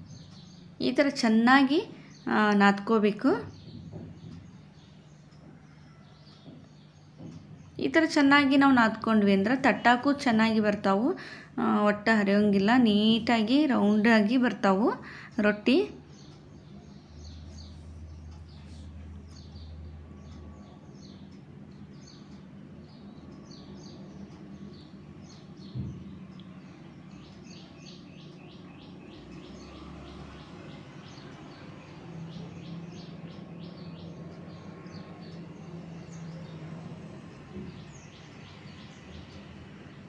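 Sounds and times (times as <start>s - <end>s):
birds chirping: 0.0s - 40.0s
thump: 25.7s - 26.1s.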